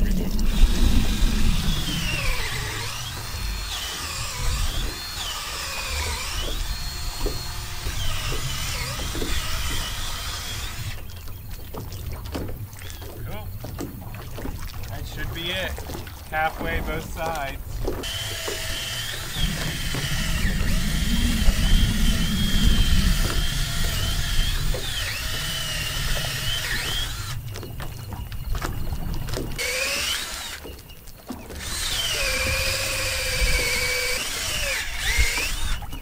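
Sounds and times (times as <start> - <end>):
cordless drill boring into wood: 0.5 - 11.0, 18.0 - 27.4, 29.6 - 30.6, 31.5 - 36.0.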